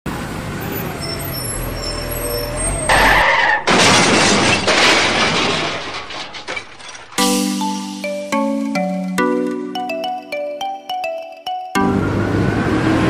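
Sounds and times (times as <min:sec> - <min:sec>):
cartoon truck engine running: 0:07.2 - 0:13.0.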